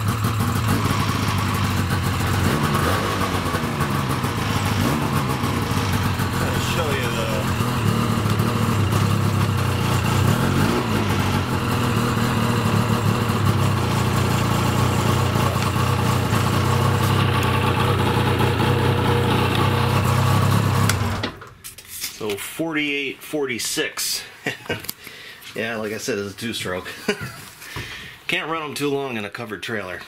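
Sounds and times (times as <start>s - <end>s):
snowmobile engine idling: 0.0s - 21.2s.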